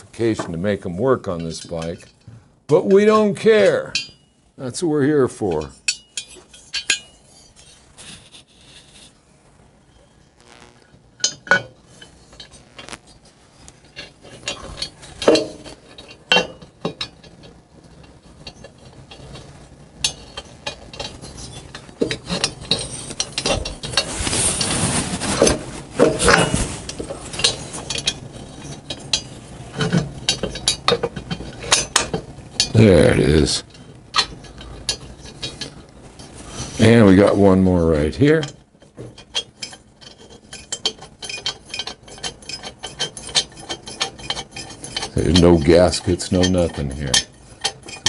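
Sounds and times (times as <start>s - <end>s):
metal rattling and scraping: 5.4s - 9.2s, 10.4s - 48.0s
metal clinks and knocks: 5.5s - 7.8s, 13.8s - 24.1s, 25.4s - 37.0s, 38.3s - 48.0s.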